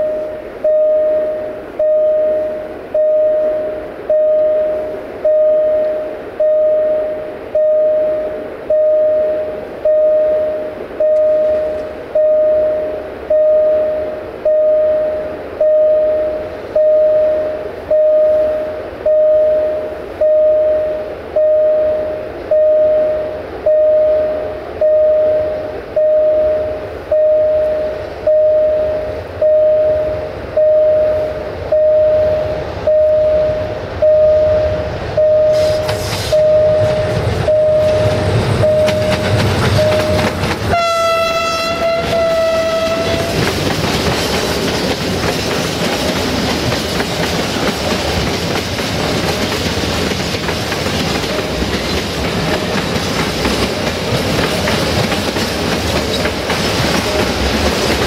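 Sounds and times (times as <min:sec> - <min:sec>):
diesel locomotive rumble: 0:00.0 - 0:58.0
level crossing bell ringing: 0:36.4 - 0:40.3.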